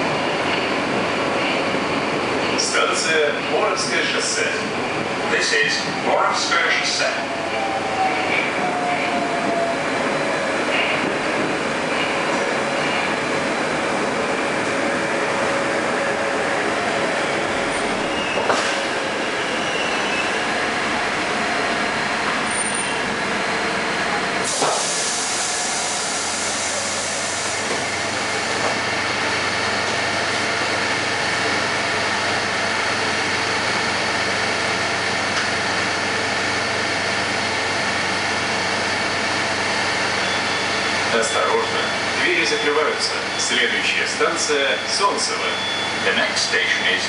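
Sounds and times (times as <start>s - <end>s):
subway train running: 0.0s - 47.0s
train car humming: 0.0s - 47.0s
train doors opening with hiss: 18.3s - 19.0s, 24.4s - 28.8s.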